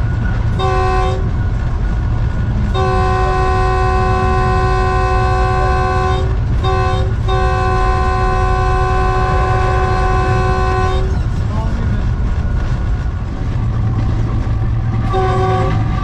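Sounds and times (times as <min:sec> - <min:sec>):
locomotive running rumble: 0:00.0 - 0:16.0
locomotive horn blasts: 0:00.6 - 0:01.3, 0:02.7 - 0:11.2, 0:15.1 - 0:16.0.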